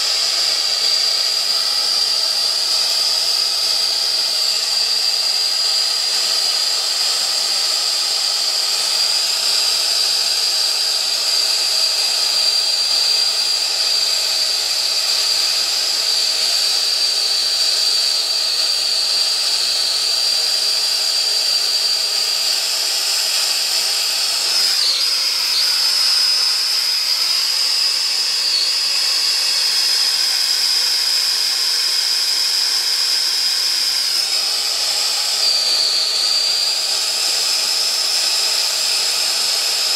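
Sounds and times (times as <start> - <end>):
high whistling tone: 17.6 - 37.8.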